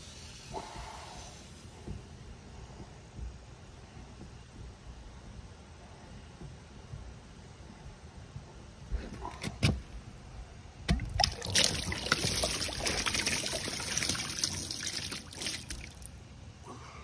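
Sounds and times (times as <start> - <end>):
water gushing from pool fitting: 10.9 - 16.2.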